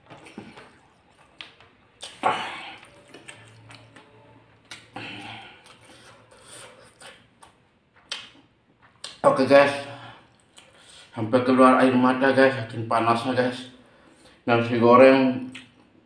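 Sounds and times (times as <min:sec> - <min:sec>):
mouth clicks and chewing: 0:00.0 - 0:09.2, 0:10.3 - 0:11.1, 0:15.5 - 0:15.8
man breathing heavily: 0:05.0 - 0:06.7.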